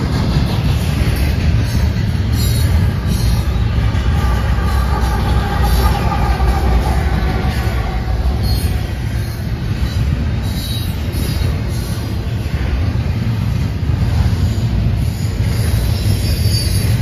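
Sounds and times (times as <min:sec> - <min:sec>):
freight train wheels rumbling: 0:00.0 - 0:17.0
wheel squeals: 0:15.1 - 0:17.0.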